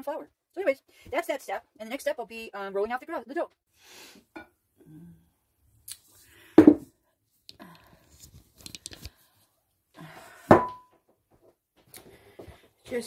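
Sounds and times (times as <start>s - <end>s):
metal bowl knocking on surface: 10.5s - 10.9s.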